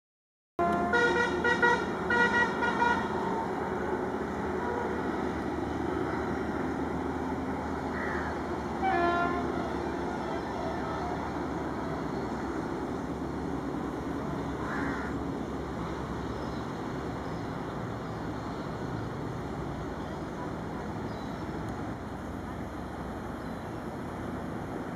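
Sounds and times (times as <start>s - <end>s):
train horn blasts: 0.6s - 3.6s, 4.5s - 5.2s, 8.8s - 11.1s
train rumbling: 0.6s - 24.9s.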